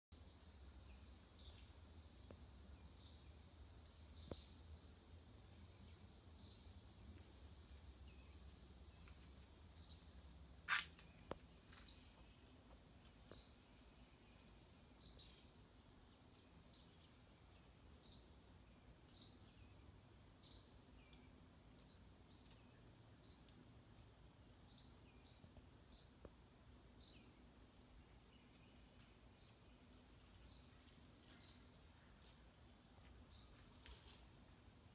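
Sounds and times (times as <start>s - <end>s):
insect drone: 0.2s - 34.9s
short high insect chirps: 10.6s - 12.0s.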